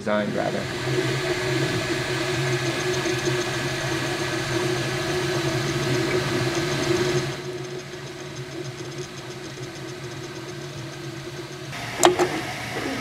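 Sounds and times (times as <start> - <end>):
low motor hum: 0.0 - 13.0
printer head buzzing: 0.0 - 13.0.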